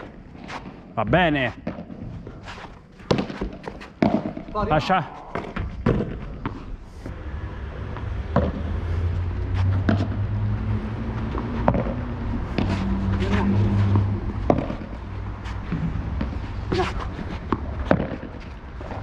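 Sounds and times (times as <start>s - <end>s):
ball bouncing: 3.0s - 4.6s, 5.3s - 6.6s, 7.9s - 8.8s, 9.8s - 10.2s, 11.2s - 19.0s
rackets striking ball: 3.0s - 4.6s, 5.3s - 6.6s, 7.9s - 8.7s, 11.4s - 12.8s, 13.9s - 15.0s, 17.5s - 18.4s
vehicle engine humming: 6.8s - 18.8s.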